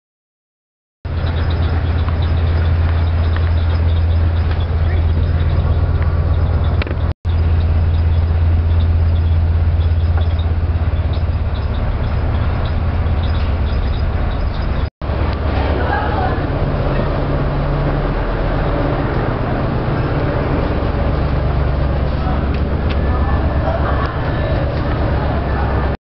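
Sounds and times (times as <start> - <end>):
constant rushing noise: 1.1 - 26.0
ferry engines humming: 1.1 - 26.0.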